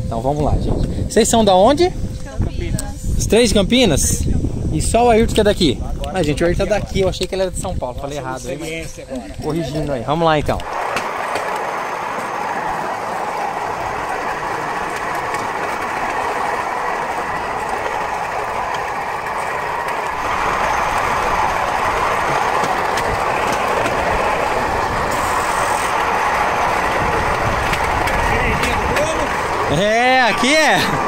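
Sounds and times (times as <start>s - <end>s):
steel wheels rolling on track: 9.3s - 31.0s.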